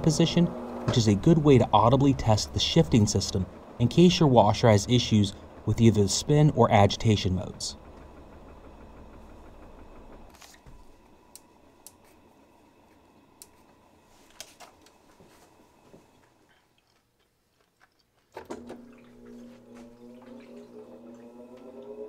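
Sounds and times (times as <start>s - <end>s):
washer motor hum: 0.0s - 16.4s, 18.3s - 22.0s
motor whine: 18.6s - 22.0s.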